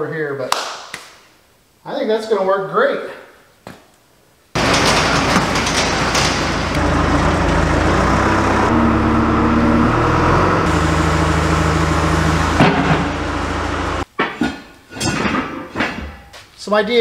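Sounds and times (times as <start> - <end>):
diesel engine running: 4.6 - 14.0
garage door rolling up: 4.6 - 14.1.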